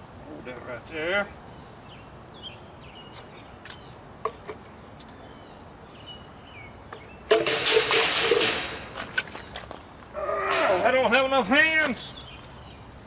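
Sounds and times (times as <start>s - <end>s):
small birds chirping: 0.4s - 7.3s, 10.9s - 13.0s.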